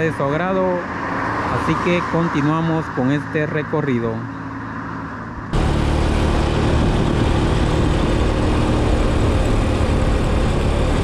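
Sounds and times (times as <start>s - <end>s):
wind rushing over microphone: 4.6s - 11.0s
motorcycle engine running: 5.3s - 11.0s.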